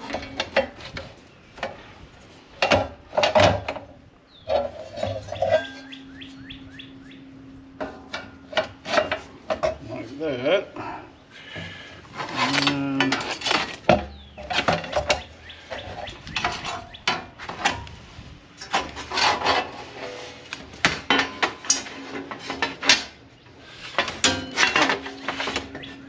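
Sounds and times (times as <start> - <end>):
metal panels clanking and scraping: 0.0 - 6.5, 7.7 - 10.4, 11.4 - 26.0
metal plates ringing: 4.5 - 9.8, 24.0 - 26.0.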